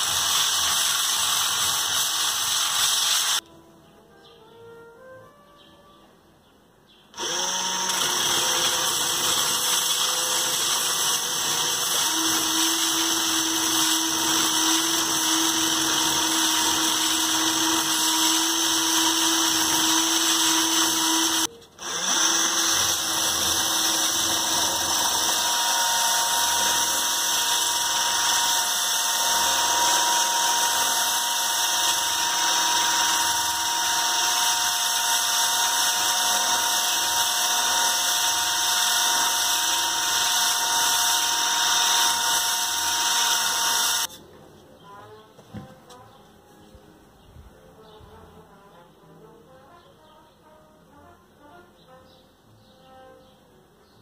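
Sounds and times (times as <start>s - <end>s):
cordless drill motor running: 0.0s - 3.4s, 7.2s - 44.1s.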